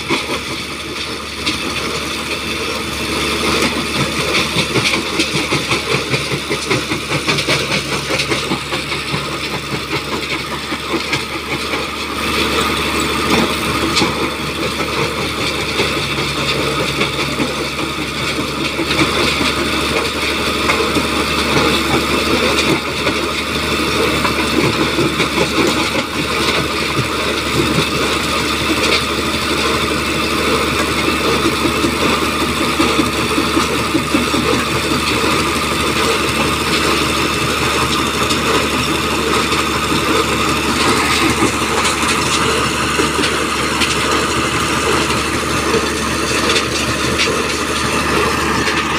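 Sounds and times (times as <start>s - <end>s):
crusher engine running: 0.0s - 48.9s
stone crushing clatter: 31.4s - 48.9s.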